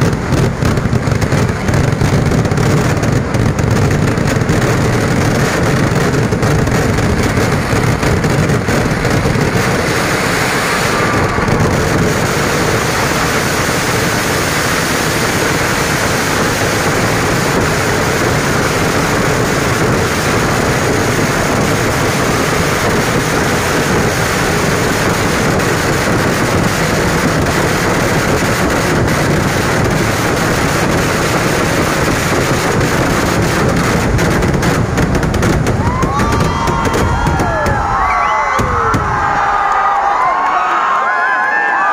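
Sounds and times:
fireworks barrage bangs: 0.0 - 40.6.

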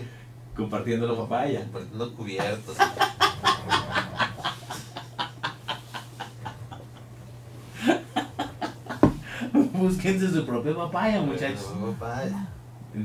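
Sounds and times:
men laughing hard: 2.7 - 7.1, 7.8 - 9.7.

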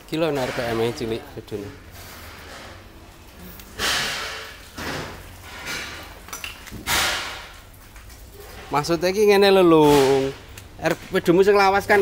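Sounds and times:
sheet metal panels clattering: 0.0 - 3.0, 3.8 - 7.8, 9.6 - 11.2.

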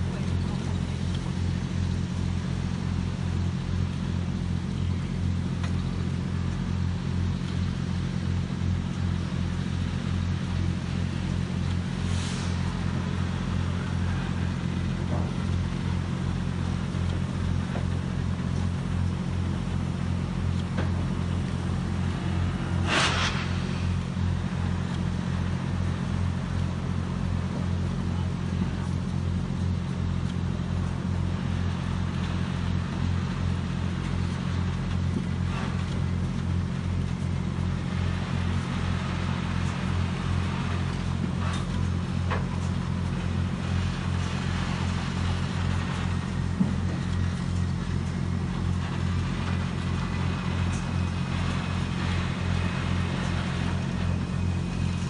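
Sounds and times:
locomotive mechanical hum and throb: 0.0 - 55.0
steam hisses: 11.9 - 14.5, 21.5 - 25.9.

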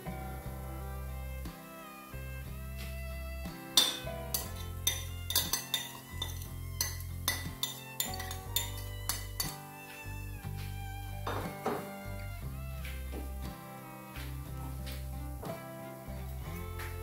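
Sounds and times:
background music with bass: 0.0 - 17.0
cutlery scraping a plate: 3.8 - 9.7.

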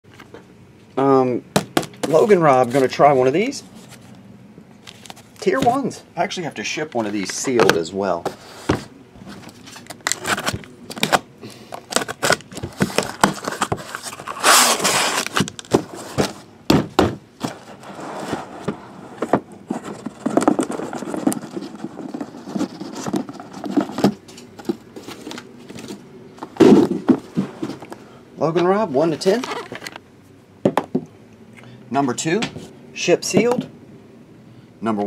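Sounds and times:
boxes knocking and thumping: 1.5 - 2.3, 11.9 - 13.9, 15.3 - 27.9
cardboard rasping and scraping: 12.2 - 16.4, 17.4 - 24.2
blade cutting packing tape: 14.2 - 15.4.

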